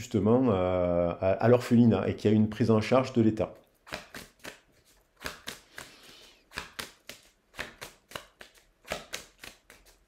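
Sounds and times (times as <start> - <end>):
cards being shuffled: 3.9 - 10.0.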